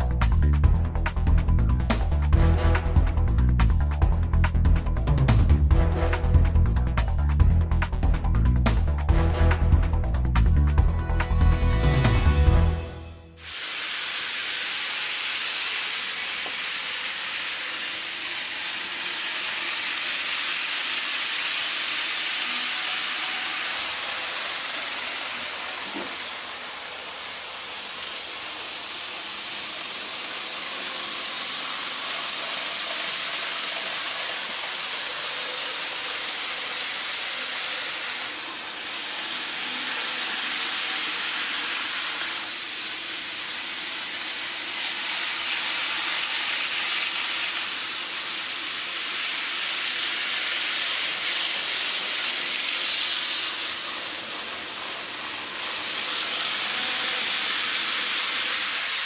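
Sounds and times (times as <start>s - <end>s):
model train running on track: 13.4s - 59.0s.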